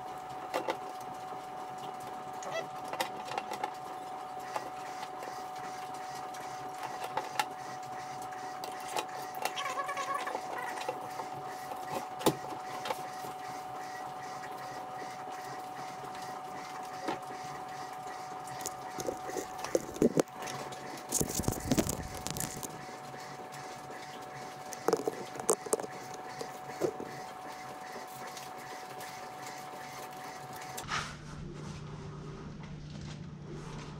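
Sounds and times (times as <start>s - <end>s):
high-pitched hum: 18.5s - 27.4s.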